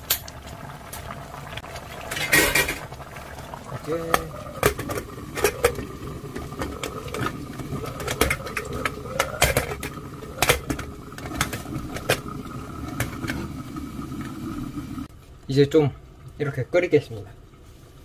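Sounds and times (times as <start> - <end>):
utensils knocking against pot: 4.1 - 12.3.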